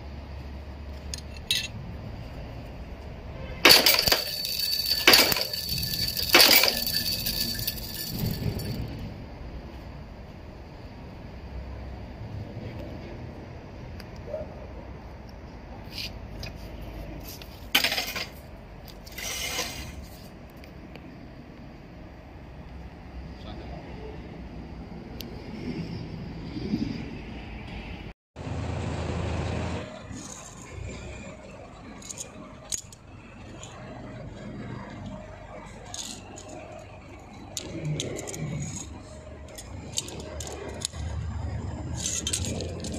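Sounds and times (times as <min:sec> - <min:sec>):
small metal parts clinking: 0:01.0 - 0:01.8, 0:03.6 - 0:09.0, 0:17.7 - 0:20.1, 0:31.8 - 0:33.8, 0:35.7 - 0:41.1, 0:42.0 - 0:42.9
metal bracket clicking and rattling: 0:03.7 - 0:08.8.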